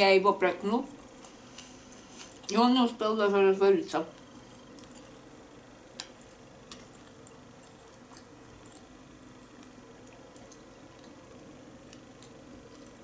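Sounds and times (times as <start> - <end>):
person chewing food: 1.0 - 2.5, 4.2 - 13.0.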